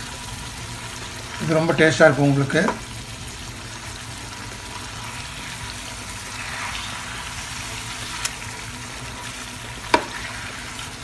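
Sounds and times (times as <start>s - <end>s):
fish sizzling in a pan: 0.0s - 11.0s
spatula stirring: 0.8s - 11.0s
spatula tapping a pan: 9.9s - 10.2s.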